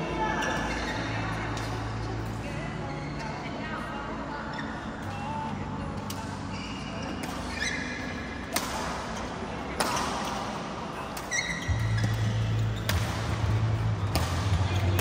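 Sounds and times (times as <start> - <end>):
shoes squeaking on floor: 0.3 - 1.3, 6.4 - 8.4, 11.2 - 13.4
rackets striking shuttlecock: 9.8 - 15.0.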